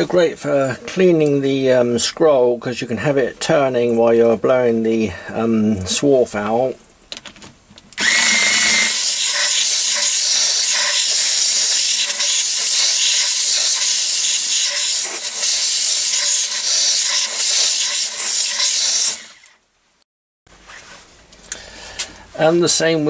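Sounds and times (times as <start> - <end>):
compressed air hissing: 8.7 - 19.4.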